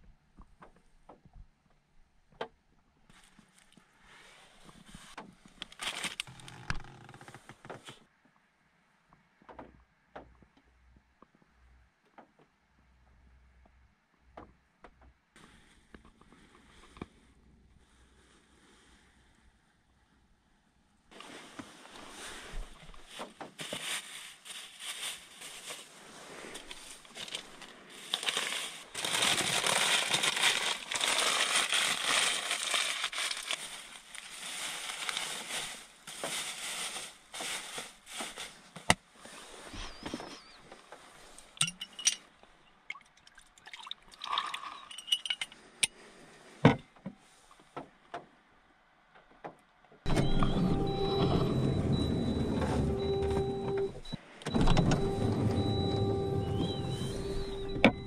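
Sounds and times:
plastic bag crinkling: 5.6s - 6.5s, 22.8s - 25.9s, 26.5s - 38.5s
glass bottle clicks and clinks: 41.6s - 42.2s, 44.5s - 45.5s.

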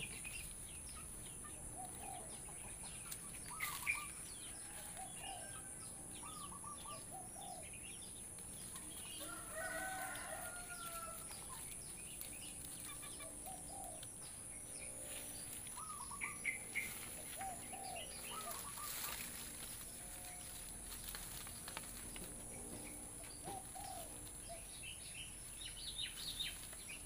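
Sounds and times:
birds chirping: 0.0s - 27.0s
rooster crowing: 4.4s - 6.3s, 9.2s - 11.5s.

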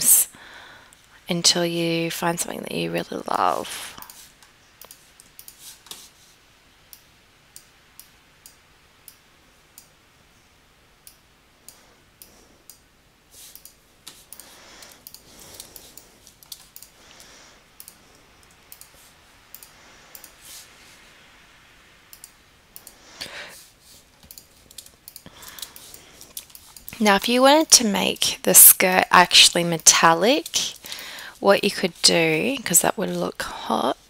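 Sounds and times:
computer mouse and keys clicking: 4.0s - 6.3s, 6.9s - 10.0s, 13.4s - 20.8s, 22.1s - 28.2s.

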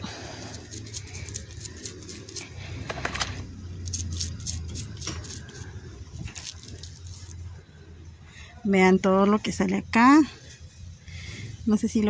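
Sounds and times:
toothbrush scrubbing leaves: 0.0s - 2.6s, 3.8s - 7.4s
low steady rumble: 0.0s - 12.0s.

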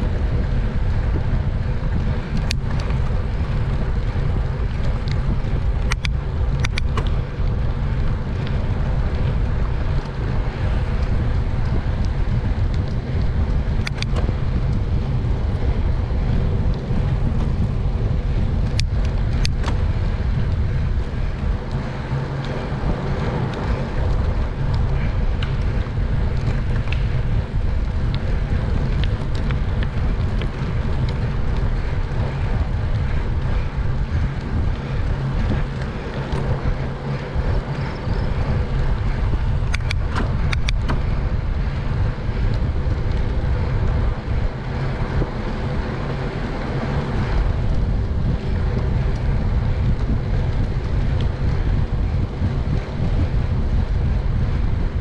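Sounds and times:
low rumble of tyres on pavement: 0.0s - 55.0s
wind on microphone: 0.0s - 55.0s
sharp clicks: 5.8s - 7.2s, 13.8s - 14.3s, 37.6s - 41.2s.

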